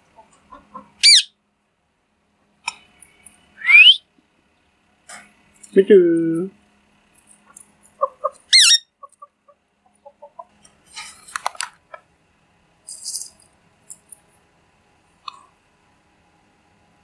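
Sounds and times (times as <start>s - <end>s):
parakeets calling: 1.0s - 1.3s, 3.6s - 4.0s, 8.0s - 9.5s
clatter of clicks: 11.2s - 11.8s.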